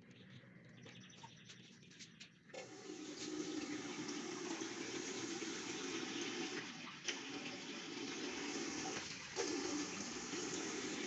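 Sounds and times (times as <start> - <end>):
water rushing into urinal: 2.6 - 11.0.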